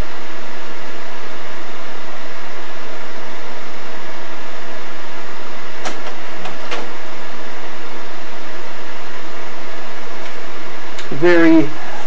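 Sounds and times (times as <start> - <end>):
projector fan whirring: 0.0 - 12.0
projector slide change clicks: 5.8 - 6.9.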